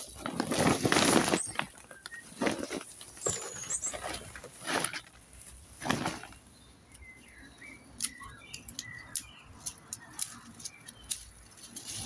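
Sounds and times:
dry stems clicking and snapping: 0:06.9 - 0:12.0.

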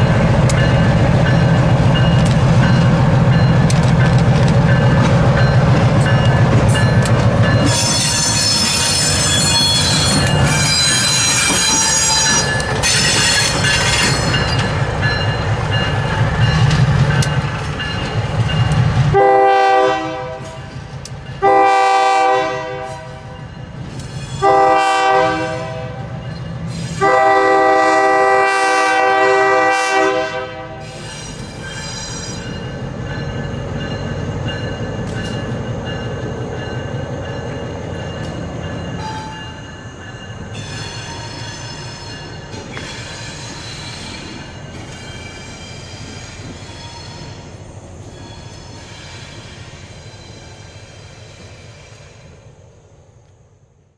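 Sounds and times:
diesel locomotive engine running: 0:00.0 - 0:22.2
wheel squeal: 0:07.6 - 0:14.7, 0:40.6 - 0:52.3
train horn blasts: 0:19.1 - 0:20.7, 0:21.4 - 0:23.4, 0:24.4 - 0:26.2, 0:26.9 - 0:30.9.

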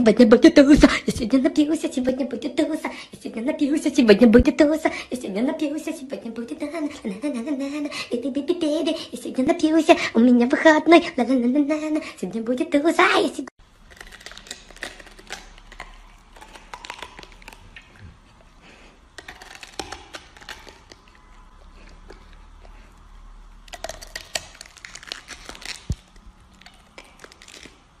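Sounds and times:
dog crunching cabbage leaves: 0:13.6 - 0:28.0.

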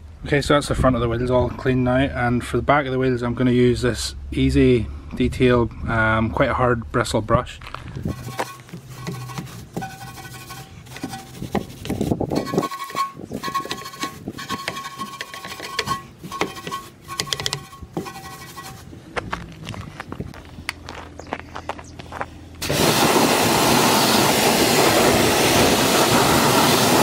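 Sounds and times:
brush scrubbing a wheel: 0:08.0 - 0:18.9.

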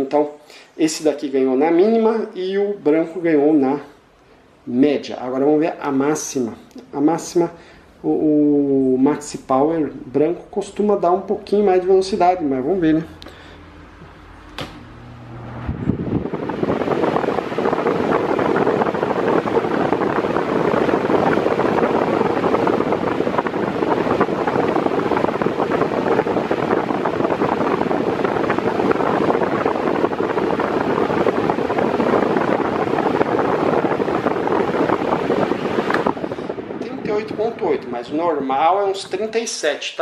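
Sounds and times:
pedestal fan running: 0:00.0 - 0:39.8
wind noise on microphone: 0:07.4 - 0:39.4.

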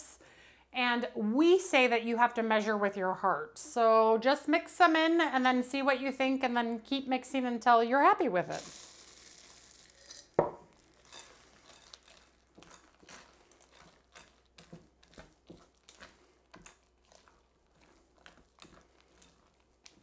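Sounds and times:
spatula scraping batter in bowl: 0:10.8 - 0:20.0.

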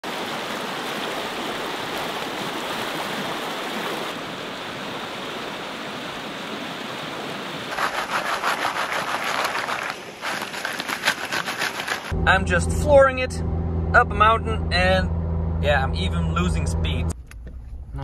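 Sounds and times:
stream rushing over rocks: 0:00.0 - 0:12.1
water and gravel swishing in pan: 0:07.7 - 0:12.2.

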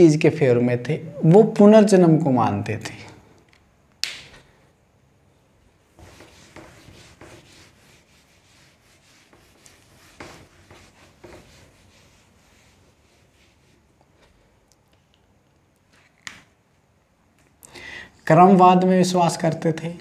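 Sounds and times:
whiteboard being wiped: 0:05.8 - 0:14.5.

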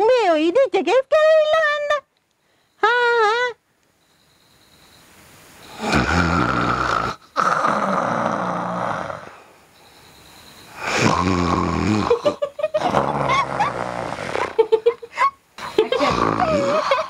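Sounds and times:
quiet breath: 0:02.3 - 0:02.8, 0:09.2 - 0:10.9
person snoring loudly: 0:05.6 - 0:09.5, 0:10.8 - 0:14.7, 0:15.8 - 0:17.0.

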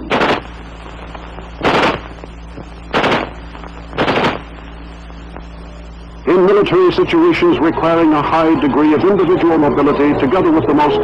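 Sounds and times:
rifle gunfire bursts: 0:00.1 - 0:00.5, 0:01.6 - 0:02.1, 0:02.9 - 0:03.4, 0:04.0 - 0:04.5.

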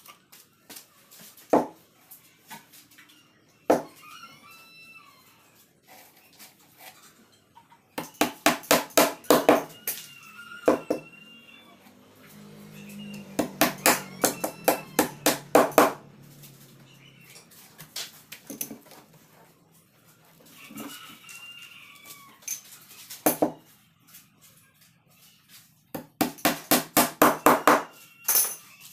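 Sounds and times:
hammer striking wood: 0:08.0 - 0:09.7, 0:13.4 - 0:16.0, 0:26.0 - 0:27.9.

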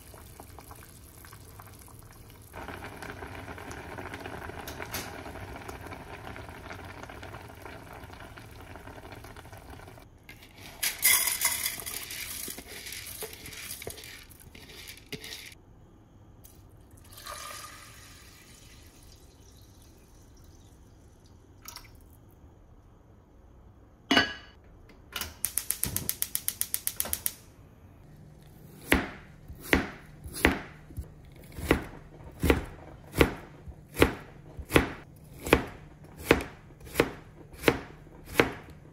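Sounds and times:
pot bubbling: 0:00.0 - 0:10.1, 0:28.0 - 0:38.9
water pouring into rice: 0:17.0 - 0:20.8.

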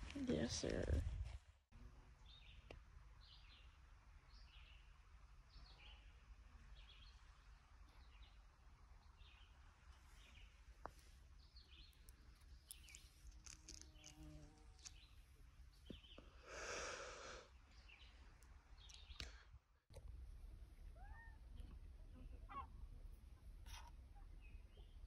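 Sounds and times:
distant birds chirping: 0:02.2 - 0:25.0
breathy rush of noise: 0:16.4 - 0:17.5.

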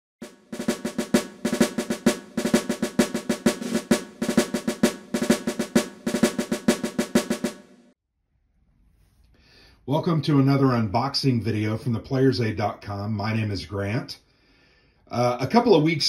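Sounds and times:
snare drum rolling pattern: 0:00.2 - 0:08.0.

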